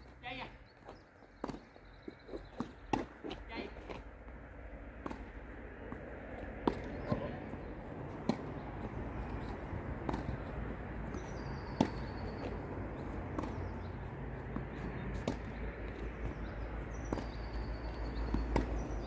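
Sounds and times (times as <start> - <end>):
tennis racket hitting ball: 5.0 - 19.0.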